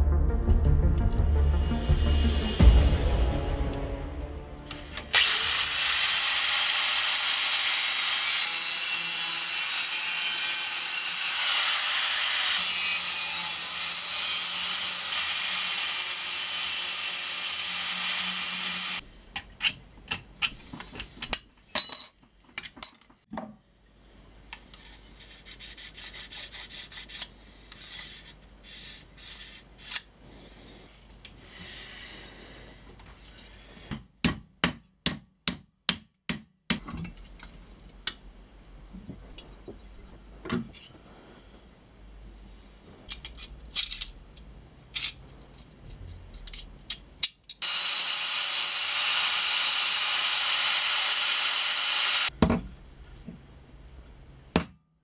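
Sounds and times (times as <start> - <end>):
angle grinder grinding steel: 4.7 - 19.0, 47.6 - 52.3
scraping and rubbing strokes: 24.4 - 31.6.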